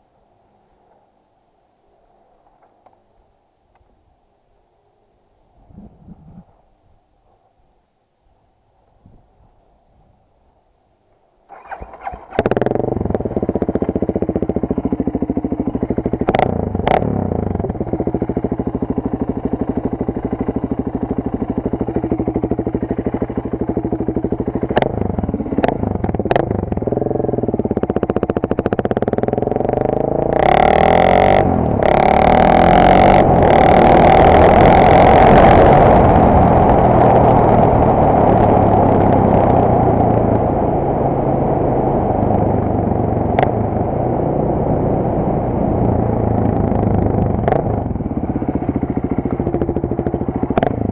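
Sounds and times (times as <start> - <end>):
motorcycle engine starting and idling: 11.5 - 50.9.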